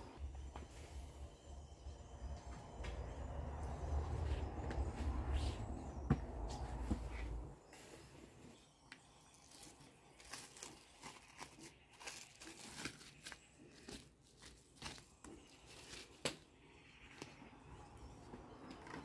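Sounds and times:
cling film crinkling: 9.4s - 16.4s.

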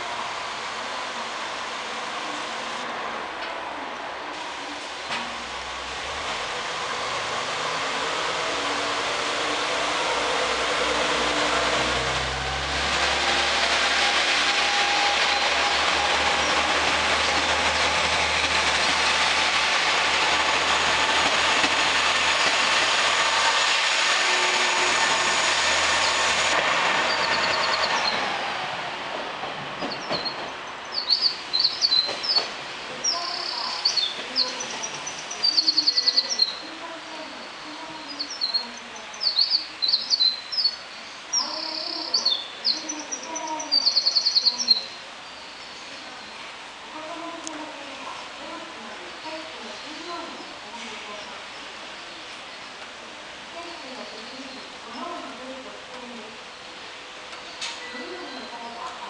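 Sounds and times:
diesel train pulling out: 0.0s - 59.0s
birds chirping and trilling: 27.1s - 28.2s, 29.9s - 36.6s, 37.4s - 46.3s.

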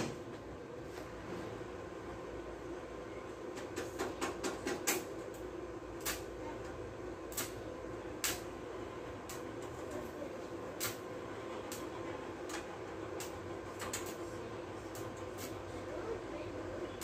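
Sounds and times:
arc welding hum: 0.0s - 17.0s
welding arc crackling snaps: 3.6s - 15.9s.

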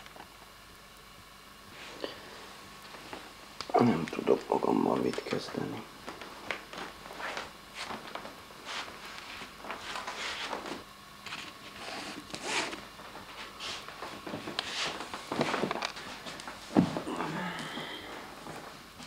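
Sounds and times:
rustling handling noises: 2.8s - 17.1s.

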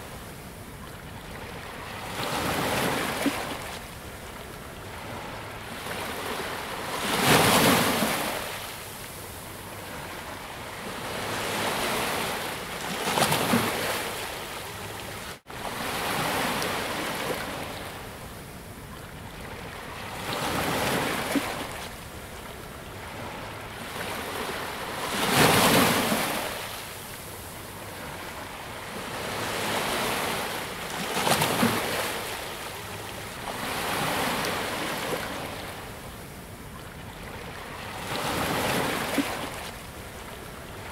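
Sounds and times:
sea waves breaking: 37.2s - 39.8s.

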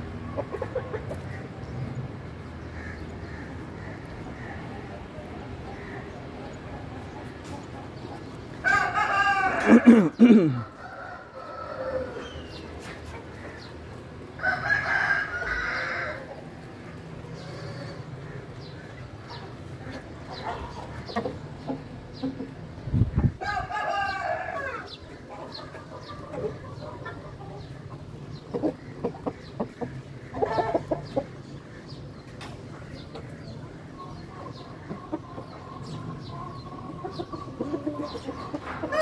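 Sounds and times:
roosters crowing: 8.5s - 18.6s, 23.3s - 27.8s, 34.2s - 39.0s.

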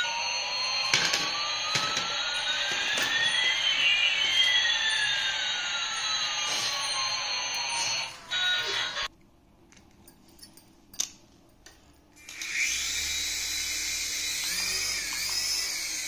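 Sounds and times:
toy electronic jet-engine sound: 0.0s - 9.1s, 12.3s - 16.0s.

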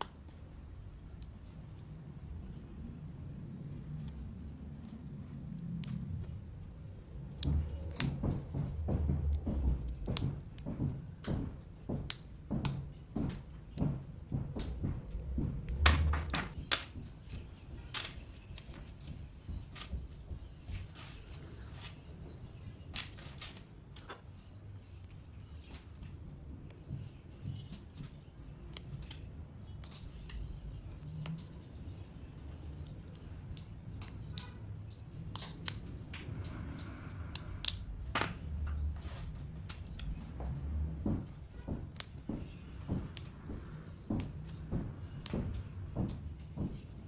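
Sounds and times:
wooden pieces clicking together: 13.4s - 18.8s.

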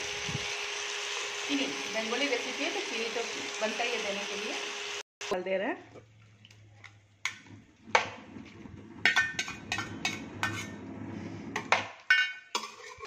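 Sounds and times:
metal spoon clinking on steel bowl: 9.1s - 10.7s.

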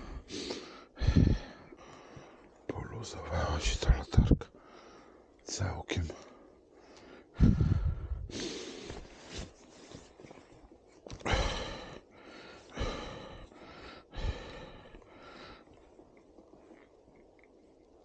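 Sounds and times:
man breathing hard: 0.0s - 2.5s, 4.6s - 5.3s, 6.6s - 9.6s, 11.2s - 15.8s.

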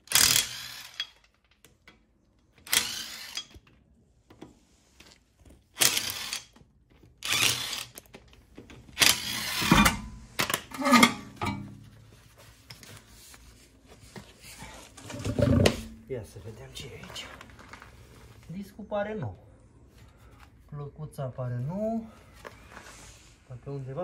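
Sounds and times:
ratchet wrench spinning: 0.0s - 1.2s, 2.7s - 3.5s, 5.8s - 6.6s, 7.2s - 8.0s, 9.0s - 9.9s.

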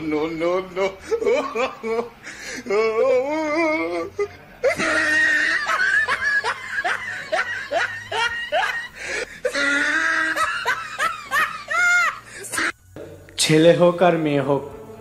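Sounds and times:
high-pitched laughter: 1.0s - 2.2s, 4.0s - 12.8s.

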